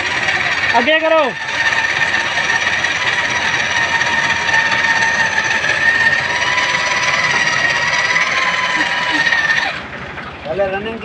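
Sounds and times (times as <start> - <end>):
electric drill whining: 0.0 - 9.8.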